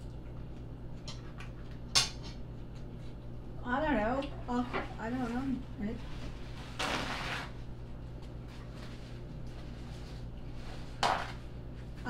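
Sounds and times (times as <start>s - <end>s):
steady low hum: 0.0s - 12.0s
paper towel tearing: 6.5s - 7.6s.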